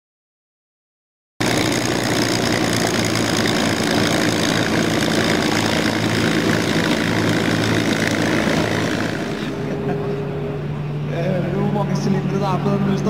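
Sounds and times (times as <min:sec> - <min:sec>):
propeller aircraft engine droning: 0:01.4 - 0:13.0.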